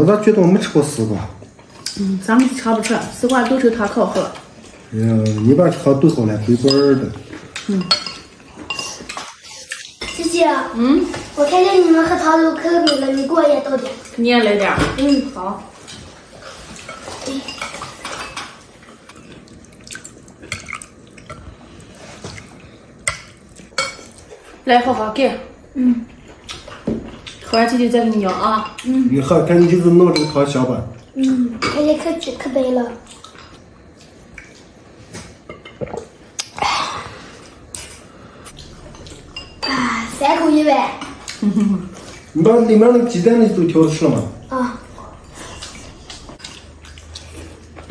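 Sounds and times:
spoon clinking against bowls: 6.6s - 10.2s
liquid pouring and dripping: 15.8s - 24.3s.

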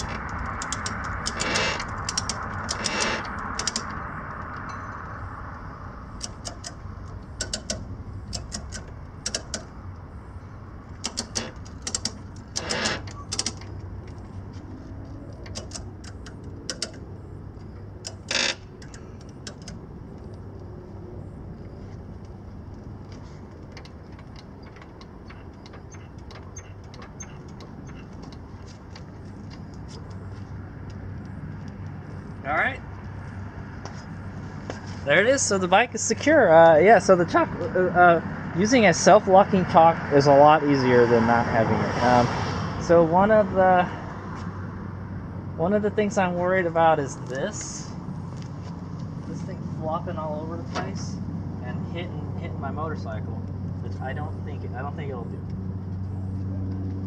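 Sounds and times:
ratchet strap clicking: 0.0s - 4.6s, 6.2s - 9.8s, 10.9s - 14.2s, 15.3s - 17.1s, 18.0s - 19.8s.

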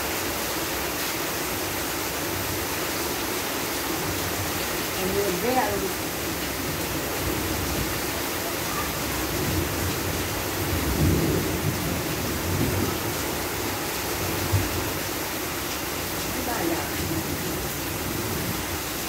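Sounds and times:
heavy rain: 0.0s - 19.0s
low thunder rumbling: 8.9s - 15.0s.

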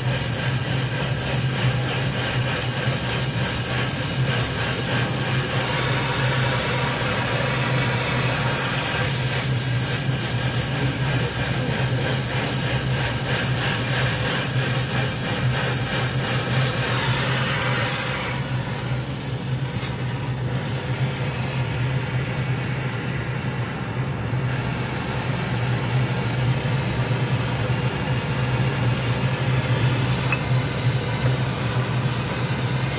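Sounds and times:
cutting torch hissing: 0.0s - 20.6s
steady low hum: 0.0s - 32.9s.

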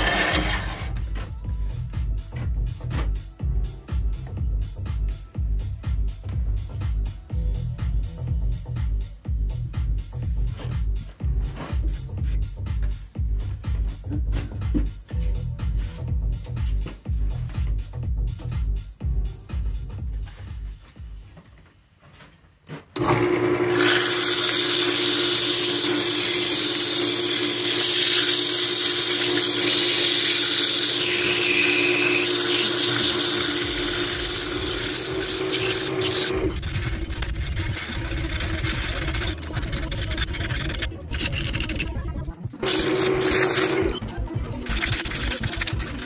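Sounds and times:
lathe motor hum: 0.0s - 0.9s, 23.0s - 41.9s, 42.6s - 45.9s
tool hissing on spinning wood: 23.7s - 41.8s.

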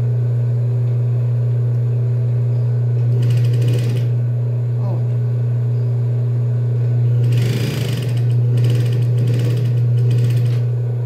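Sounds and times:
sewing machine motor humming: 3.0s - 4.2s, 7.2s - 10.8s
rapid machine stitching: 3.1s - 4.1s, 7.2s - 10.6s.

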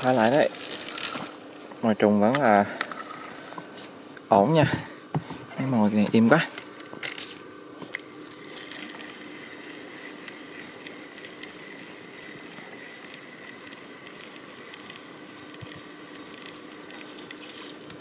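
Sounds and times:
small ticks: 7.8s - 18.0s.

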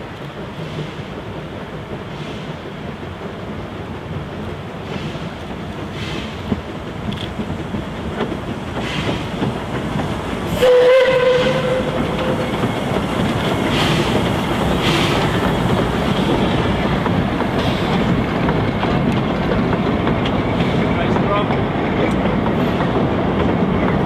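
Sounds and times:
train wheels clattering over rail joints: 0.0s - 24.0s
steam locomotive whistle: 10.6s - 12.4s.

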